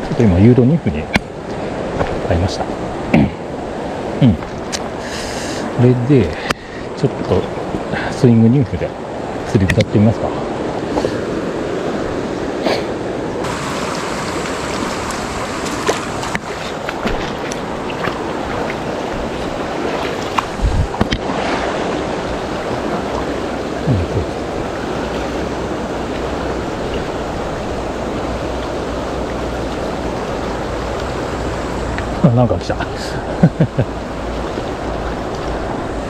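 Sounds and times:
river water rushing over rocks: 0:10.3 - 0:36.0.

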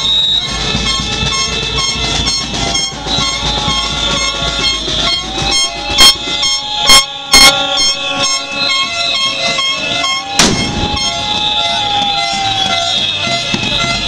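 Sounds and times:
air horns blaring: 0:00.0 - 0:14.0
whistles blaring: 0:00.0 - 0:14.0
firecracker bangs: 0:09.7 - 0:14.0.

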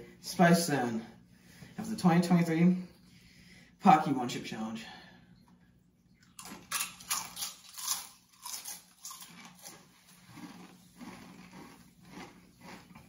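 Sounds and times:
chewing crunches: 0:06.2 - 0:13.0
chip crunching: 0:06.2 - 0:13.0.

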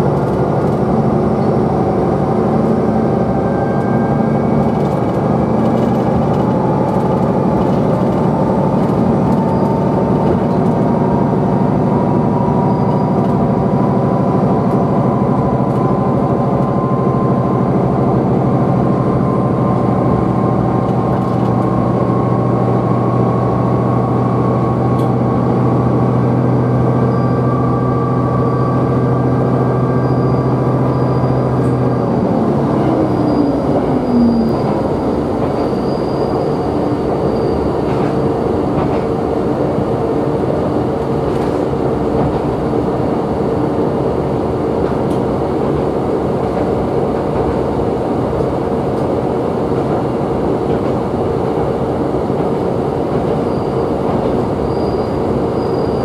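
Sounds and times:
diesel engine drone: 0:00.0 - 0:56.0
high engine whine: 0:00.0 - 0:56.0.

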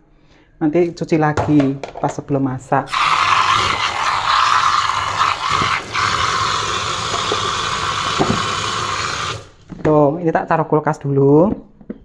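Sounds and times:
tap water running into sink: 0:02.9 - 0:09.6.

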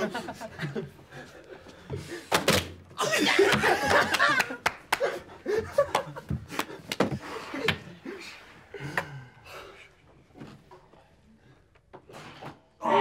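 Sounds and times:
men snickering: 0:03.0 - 0:09.1.

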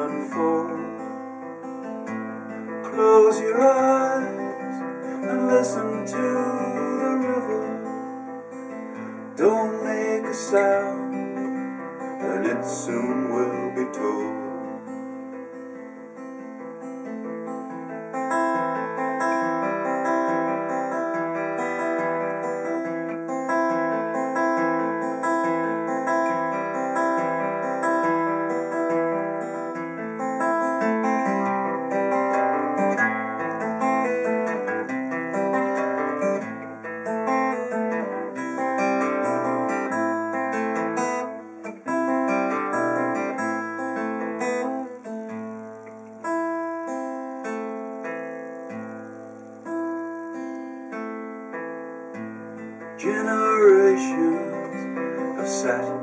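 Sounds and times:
acoustic guitar strumming: 0:00.0 - 0:56.0.

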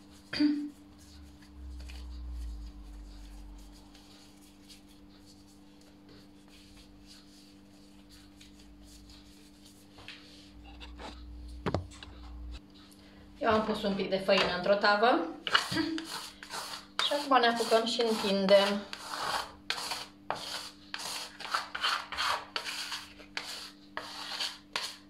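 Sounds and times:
hands rubbing dough: 0:00.0 - 0:10.6, 0:15.4 - 0:25.0
steady low hum: 0:00.0 - 0:15.5.

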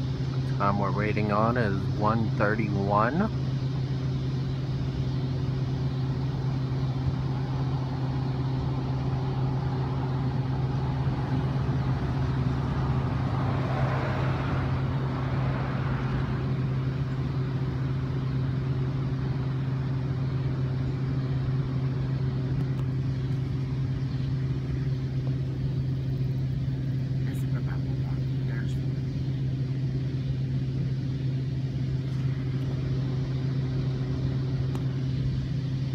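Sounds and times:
low mechanical hum: 0:00.0 - 0:35.9
rush of noise: 0:07.2 - 0:17.2.

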